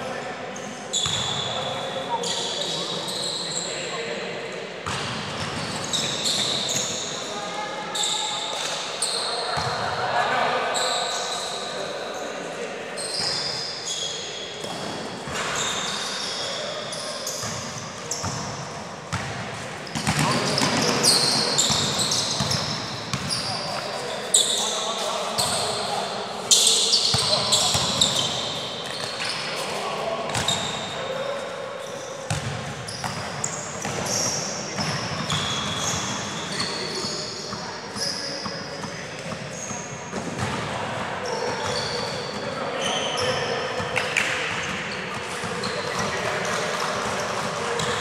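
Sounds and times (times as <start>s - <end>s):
sneakers squeaking on court floor: 0.6s - 3.9s, 4.8s - 9.8s, 10.7s - 48.0s.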